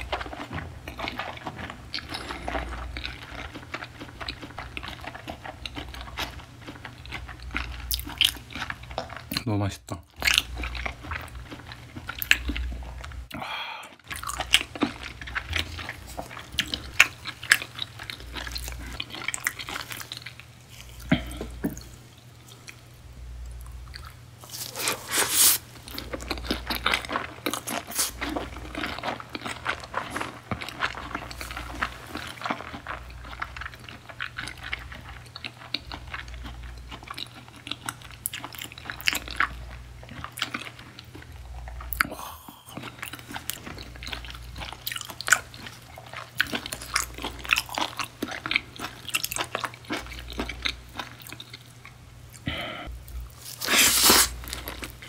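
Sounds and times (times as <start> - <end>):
wet chewing: 0.0 - 9.4, 10.1 - 22.8, 23.5 - 55.0.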